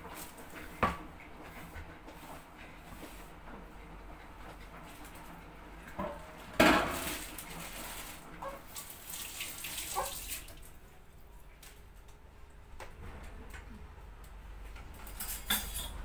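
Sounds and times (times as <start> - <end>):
water running from tap: 6.9 - 10.8
dishes clinking: 15.1 - 16.0.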